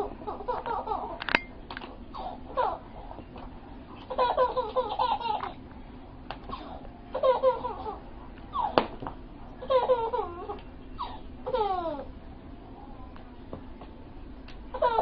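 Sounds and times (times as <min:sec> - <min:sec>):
baby laughing: 0:00.0 - 0:01.2, 0:02.1 - 0:03.2, 0:04.0 - 0:05.6, 0:06.5 - 0:08.9, 0:09.6 - 0:12.1, 0:14.7 - 0:15.0.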